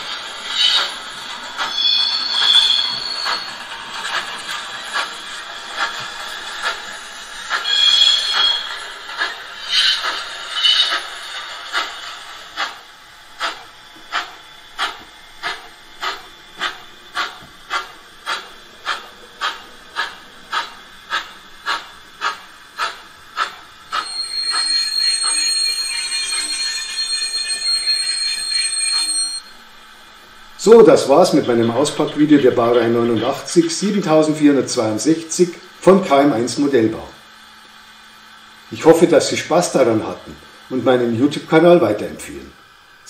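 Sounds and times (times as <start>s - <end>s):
model steam engine chuffs: 0.0s - 29.4s, 38.2s - 42.6s.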